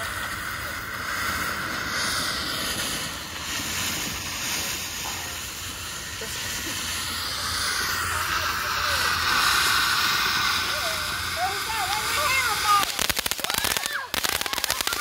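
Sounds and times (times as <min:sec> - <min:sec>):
firework spraying sparks with hiss: 0:00.0 - 0:15.0.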